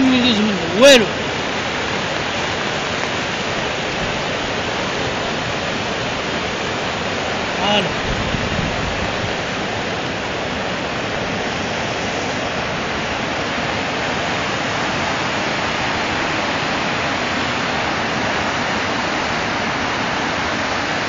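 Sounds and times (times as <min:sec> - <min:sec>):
floodwater rushing: 0:00.0 - 0:21.0.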